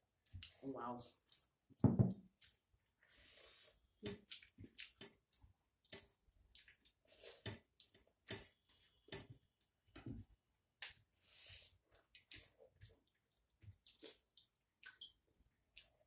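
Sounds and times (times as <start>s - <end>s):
wet chewing and lip smacks: 1.2s - 1.6s, 4.0s - 9.1s, 11.9s - 16.0s.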